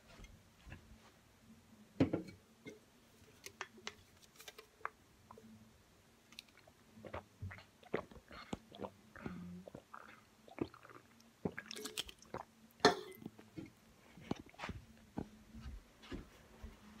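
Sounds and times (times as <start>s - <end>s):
person gulping and swallowing: 6.4s - 13.5s, 14.2s - 14.6s.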